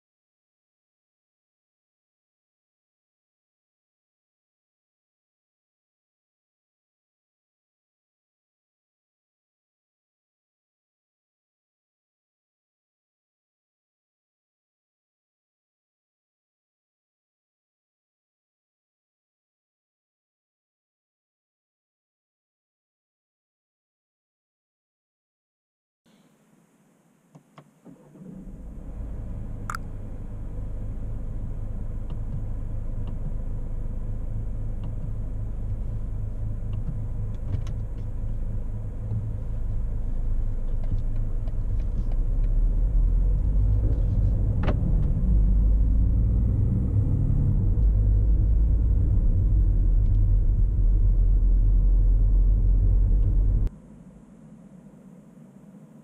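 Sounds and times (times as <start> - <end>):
diesel engine running: 28.5 - 53.7.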